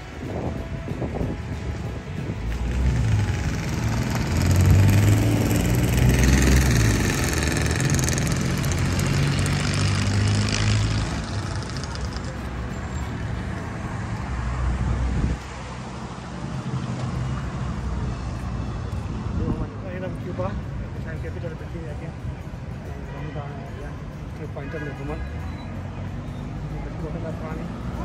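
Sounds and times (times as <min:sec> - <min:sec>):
low engine hum: 0:00.0 - 0:19.8
cars passing: 0:00.0 - 0:28.0.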